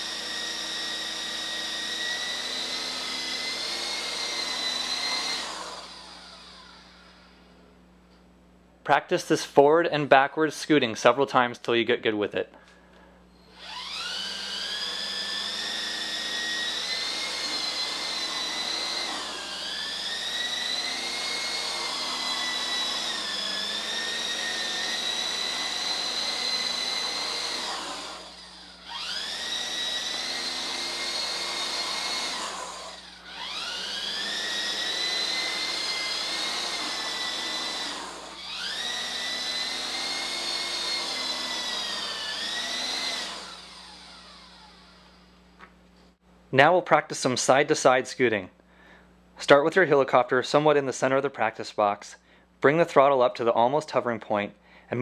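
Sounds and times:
toy helicopter motor whining: 0.0s - 7.3s, 13.3s - 45.3s.

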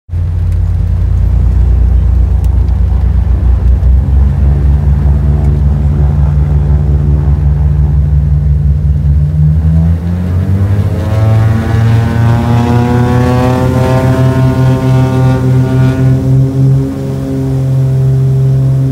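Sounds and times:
aircraft piston engines droning: 0.2s - 9.2s.

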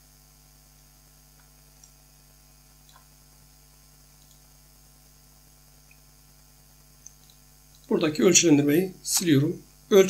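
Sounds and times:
low mains hum: 0.0s - 10.0s
faint computer mouse clicks: 4.2s - 4.4s.

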